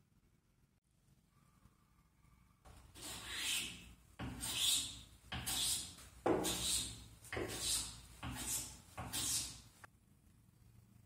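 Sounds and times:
hand tool scraping wood: 2.7s - 9.8s.

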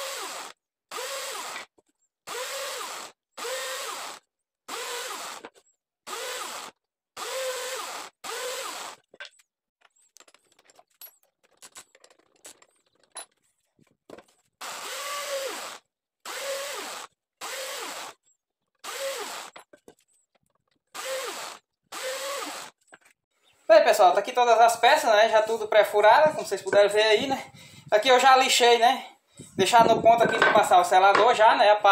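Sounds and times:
drill press boring wood: 0.0s - 1.7s, 2.3s - 9.0s, 14.6s - 18.2s, 18.8s - 19.6s, 20.9s - 22.8s
small clicks and rattles: 9.1s - 14.4s.

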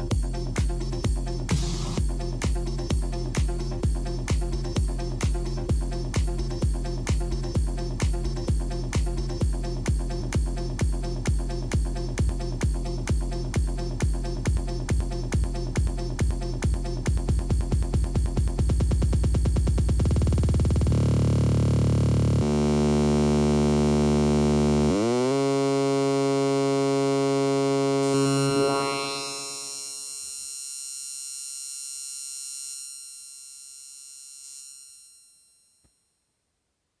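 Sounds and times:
electronic dance beat loop stuttering: 0.0s - 30.0s
buzzing synth drone: 19.4s - 35.2s
filter sweep: 20.0s - 30.3s.

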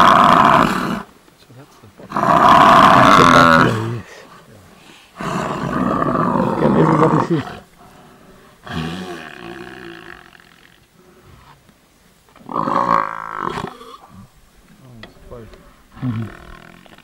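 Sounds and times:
deep animal calls: 0.0s - 1.1s, 2.1s - 4.1s, 4.8s - 11.6s, 15.4s - 17.0s.

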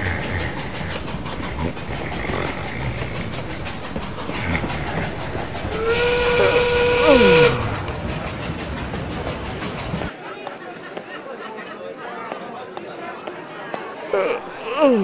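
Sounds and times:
steam train clatter: 0.0s - 14.6s
train whistle: 5.7s - 7.8s.

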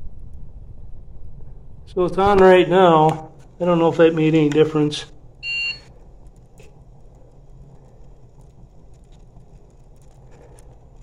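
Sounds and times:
faint low rumble: 0.0s - 11.0s
thermometer electronic beep: 5.4s - 5.9s.

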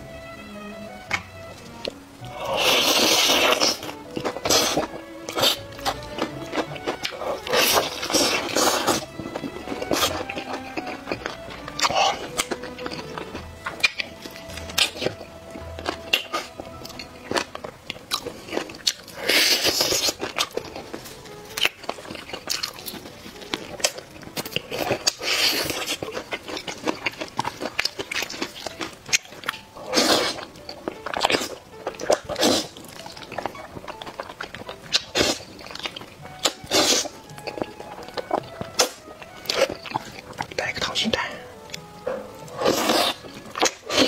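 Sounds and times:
wet chewing: 1.1s - 44.0s
loud noodle slurps: 2.3s - 5.6s, 7.2s - 9.1s, 18.4s - 20.2s, 24.8s - 26.0s, 29.8s - 30.4s, 32.2s - 32.8s, 35.0s - 35.5s, 36.7s - 37.2s, 42.5s - 44.0s.

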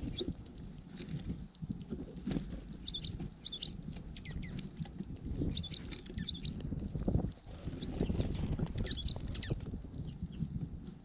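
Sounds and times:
birds pecking in seed: 0.0s - 11.0s
wind rumble on microphone: 0.0s - 11.0s
songbirds chirping: 2.8s - 4.7s, 5.3s - 6.6s.

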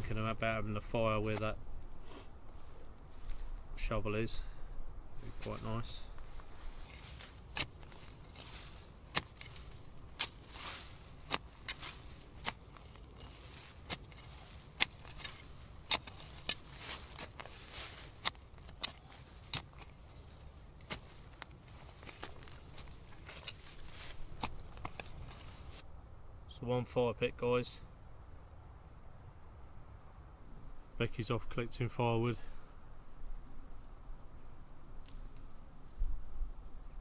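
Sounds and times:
dead leaves rustling: 5.1s - 25.8s
shovel blade chopping into ground: 6.8s - 25.8s.

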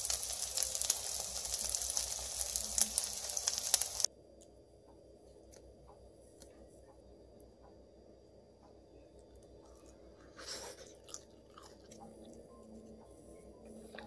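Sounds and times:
pancakes sizzling in oil: 0.0s - 4.1s.

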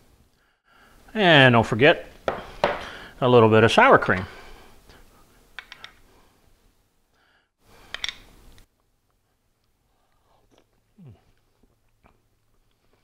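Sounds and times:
person humming mm: 10.1s - 11.4s.

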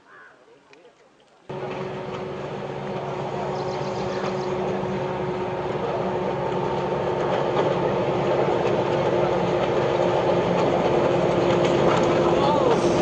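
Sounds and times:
diesel locomotive engine droning: 1.5s - 13.0s.

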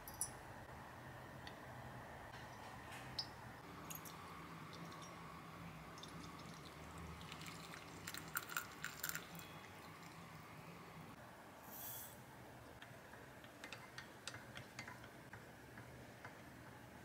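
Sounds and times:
water poured into a mug: 5.9s - 10.3s.

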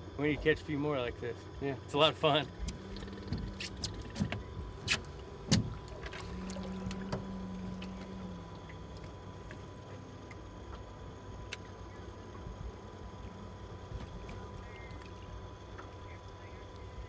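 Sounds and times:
low hum: 0.0s - 17.0s
knocks against aluminium boat: 2.6s - 5.8s.

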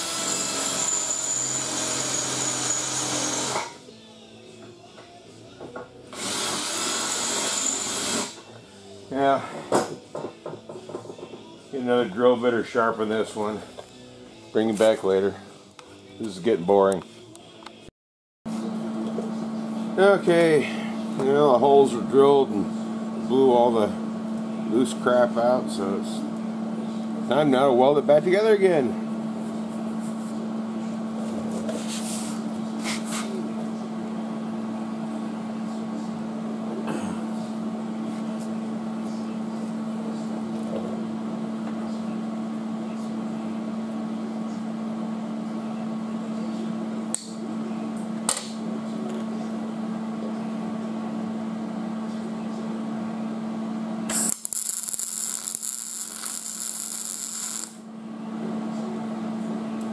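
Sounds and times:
steady hum: 53.5s - 58.6s
welder arc crackling: 54.1s - 57.8s.

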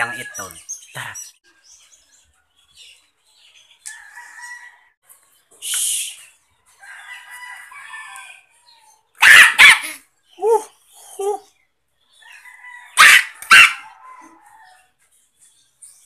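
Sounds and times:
dog barking: 9.2s - 10.0s, 13.0s - 14.4s.

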